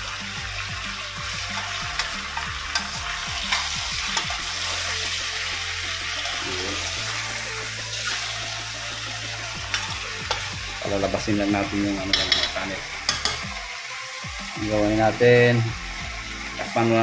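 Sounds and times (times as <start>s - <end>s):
chicken sizzling in a pan: 0.0s - 17.0s
utensil clicking against pan: 1.5s - 4.4s, 12.1s - 13.5s.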